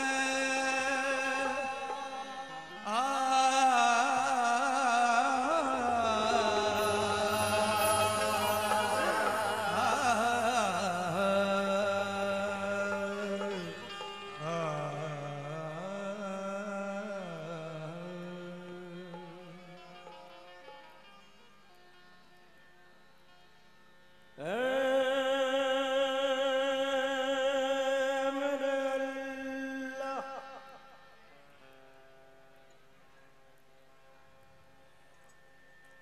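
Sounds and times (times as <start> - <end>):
man singing ornamented notes: 0.0 - 20.2, 24.4 - 31.2
harmonium: 0.0 - 36.0.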